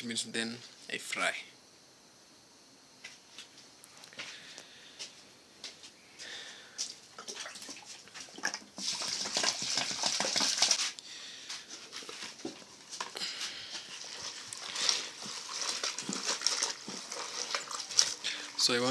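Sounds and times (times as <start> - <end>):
hand sloshing greens in water: 7.2 - 10.9, 13.9 - 18.9
water pouring into a basin: 7.2 - 10.9, 13.9 - 18.9.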